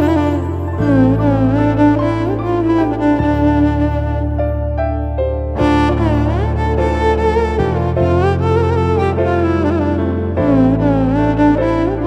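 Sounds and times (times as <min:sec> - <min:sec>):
held low bass notes: 0:00.0 - 0:12.0
slow sliding melody: 0:00.0 - 0:12.0.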